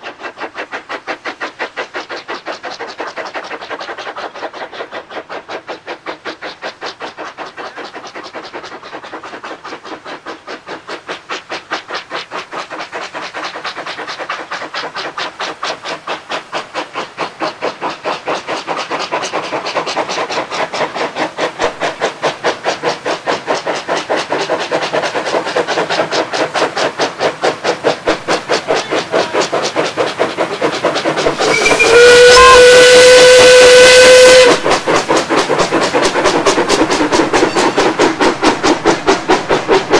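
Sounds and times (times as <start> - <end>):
steam locomotive chuffing: 0.0 - 39.9
steam whistle blast: 31.4 - 34.6.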